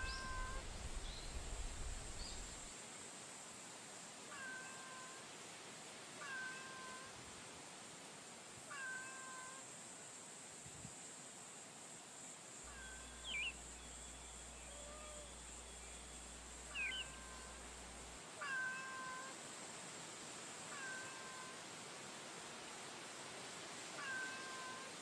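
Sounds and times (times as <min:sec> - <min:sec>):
cat meowing softly: 0:00.0 - 0:00.6, 0:04.3 - 0:05.2, 0:06.2 - 0:07.1, 0:08.7 - 0:09.6, 0:16.7 - 0:17.6, 0:18.4 - 0:19.4, 0:20.7 - 0:21.6, 0:24.0 - 0:25.0.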